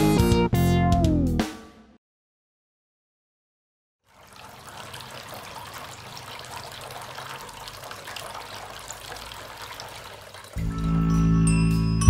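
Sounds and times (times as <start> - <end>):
fountain water trickling and splashing: 4.1 - 11.4.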